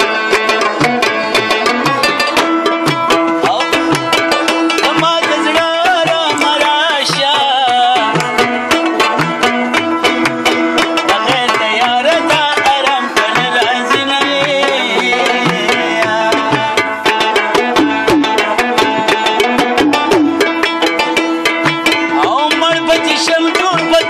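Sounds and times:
plucked lute melody: 0:00.0 - 0:24.0
pot drum rhythm: 0:00.0 - 0:24.0
person singing: 0:03.4 - 0:08.5, 0:10.8 - 0:19.6, 0:22.1 - 0:24.0.

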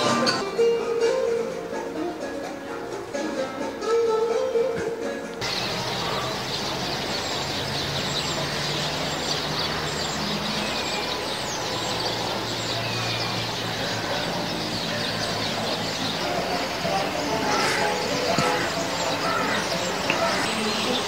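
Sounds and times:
background hiss: 0:00.0 - 0:21.0
low engine hum: 0:05.4 - 0:20.2
small birds chirping: 0:05.4 - 0:21.0.

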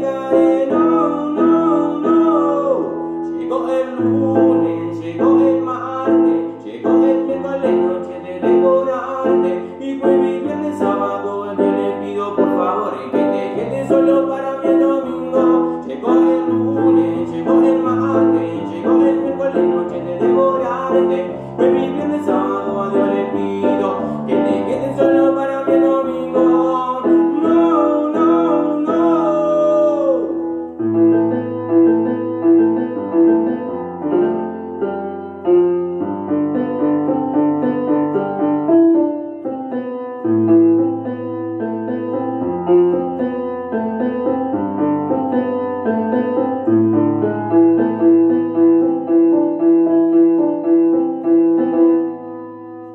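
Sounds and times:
man singing: 0:00.0 - 0:30.7.

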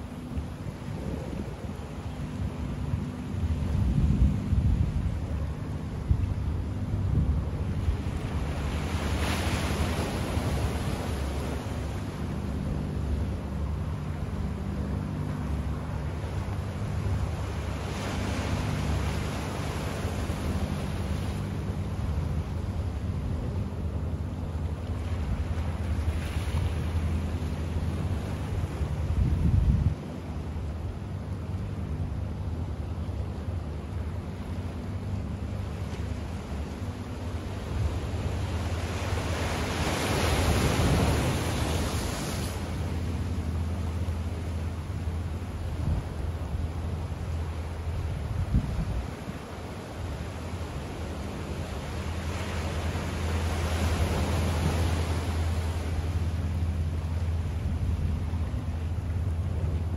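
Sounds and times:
steady low rumble: 0:00.0 - 0:59.9
waves washing against rocks: 0:38.1 - 0:44.3, 0:47.3 - 0:57.4
low rumble: 0:50.2 - 0:59.9.

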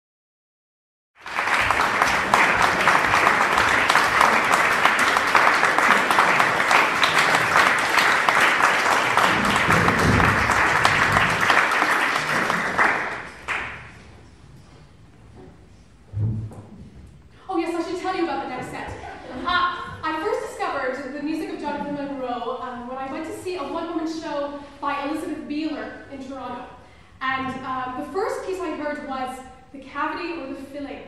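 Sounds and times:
audience applauding: 0:01.2 - 0:14.1.

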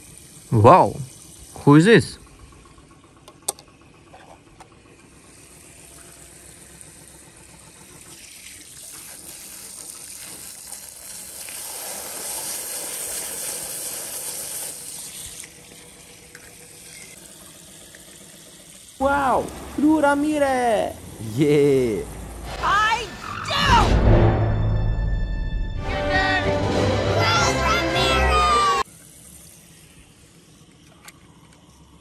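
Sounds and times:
running water: 0:05.2 - 0:22.5.

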